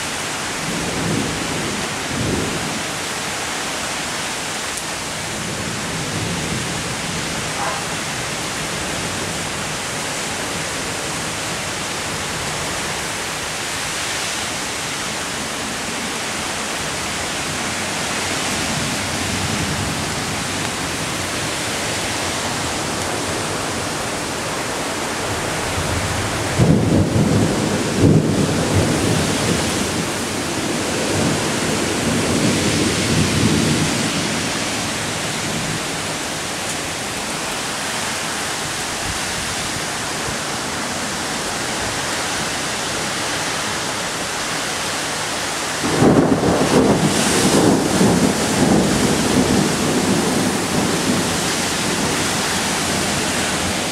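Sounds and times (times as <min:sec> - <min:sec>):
heavy rain pouring: 0:00.0 - 0:53.9
low thunder rumbles: 0:25.3 - 0:36.3, 0:45.8 - 0:53.9.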